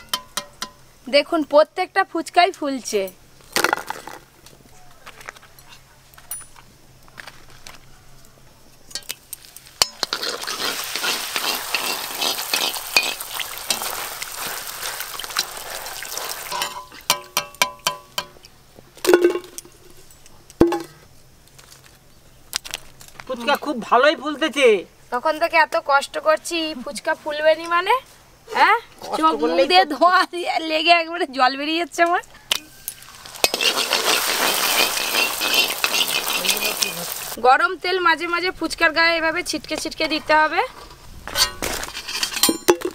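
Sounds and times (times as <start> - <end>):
metal spoon clinking against pan: 0.0 - 0.8, 16.5 - 18.4, 33.4 - 36.6
dough frying in hot oil: 9.0 - 17.7, 33.0 - 37.4.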